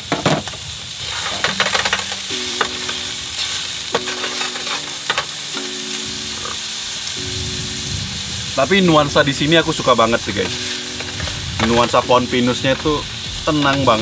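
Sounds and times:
meat sizzling in a pan: 0:00.0 - 0:14.0
utensils tapping on board: 0:01.2 - 0:05.7.

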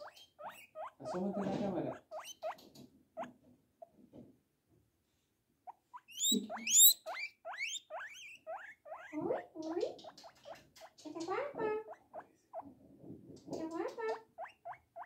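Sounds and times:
small animal squeaking: 0:00.0 - 0:03.3, 0:05.6 - 0:12.7, 0:13.5 - 0:15.0.

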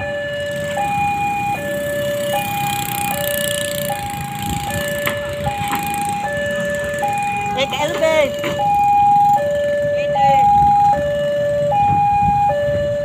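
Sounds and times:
level crossing two-tone alarm: 0:00.0 - 0:13.0
motorbike engines running: 0:00.0 - 0:13.0.

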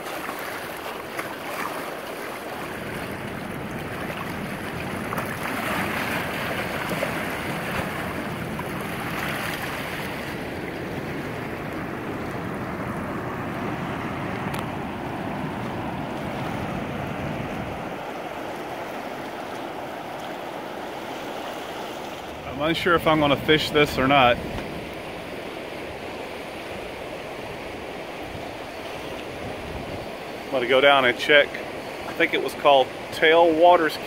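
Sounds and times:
rushing dam tailwater: 0:00.0 - 0:34.0
waves washing over walkway: 0:00.0 - 0:34.0.

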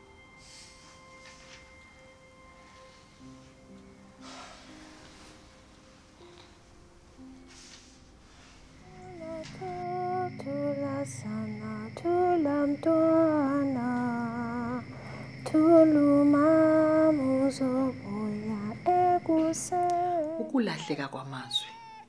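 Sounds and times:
woman singing slow melody: 0:08.8 - 0:21.6
faint steady high tone: 0:08.8 - 0:22.0.

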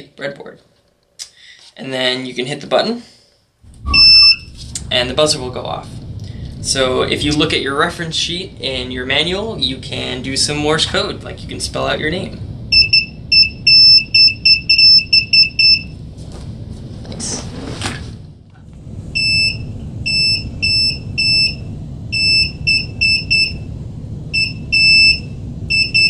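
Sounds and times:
electronic buzzer beeping: 0:03.9 - 0:04.4, 0:12.7 - 0:15.9, 0:19.2 - 0:21.6, 0:22.2 - 0:23.6, 0:24.4 - 0:26.0.

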